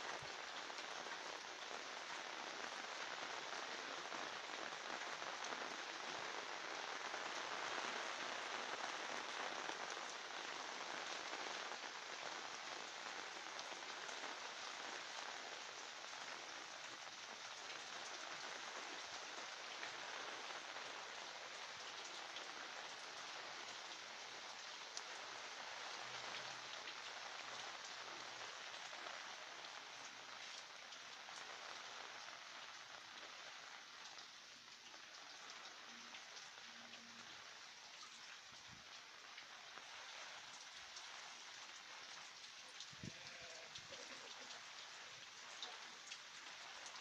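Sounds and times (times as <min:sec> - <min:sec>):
rain on roof and foliage: 0:00.0 - 0:47.0.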